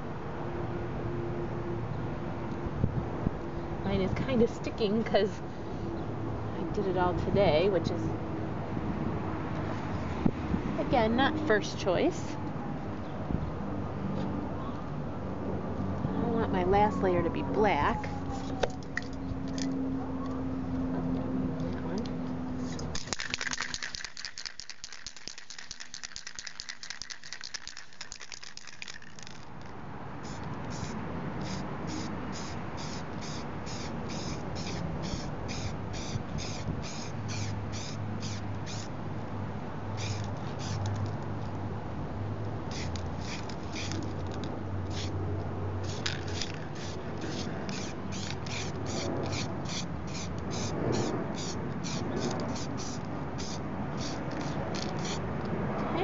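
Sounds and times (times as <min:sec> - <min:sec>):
sharp sounds from spray can: 0:22.6 - 0:29.5, 0:30.2 - 0:38.9, 0:40.0 - 0:41.2, 0:42.7 - 0:45.2, 0:45.8 - 0:55.2
spray can rattling while shaken: 0:22.6 - 0:38.9, 0:40.0 - 0:41.2, 0:42.7 - 0:45.2, 0:45.8 - 0:55.2.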